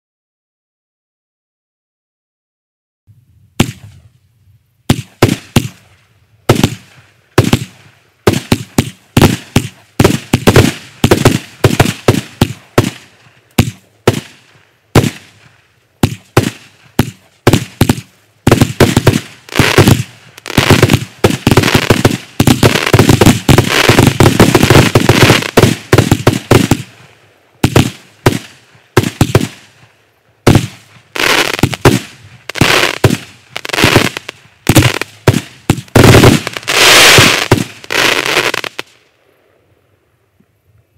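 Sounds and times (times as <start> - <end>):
firework cake bangs: 4.9 - 5.8, 6.5 - 14.4, 15.0 - 26.9, 27.6 - 29.7, 30.5 - 30.9, 31.6 - 37.8.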